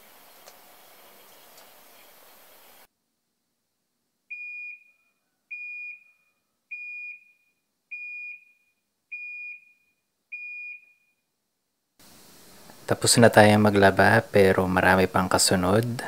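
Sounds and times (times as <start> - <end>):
washing machine beeps: 4.3 - 11.2.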